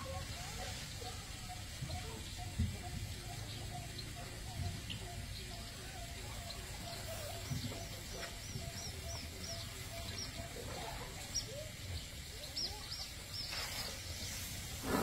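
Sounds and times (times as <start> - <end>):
birds chirping: 0.0 - 14.0, 14.7 - 15.0
elephant blowing through trunk: 14.7 - 15.0.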